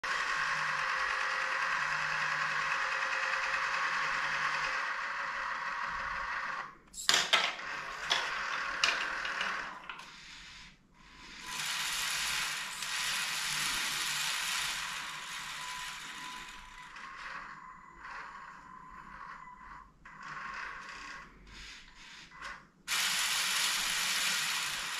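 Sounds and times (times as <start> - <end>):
toy motors whirring: 0.0 - 24.9.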